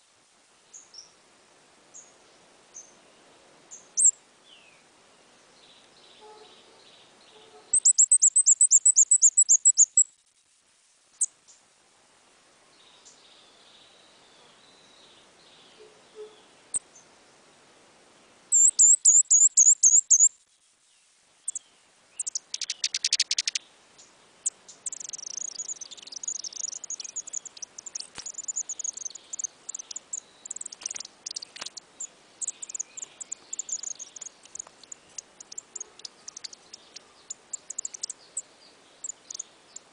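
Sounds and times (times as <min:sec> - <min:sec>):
rustle: 0:00.0 - 0:39.9
bird chirping: 0:03.7 - 0:04.8, 0:05.6 - 0:10.2, 0:18.5 - 0:39.9.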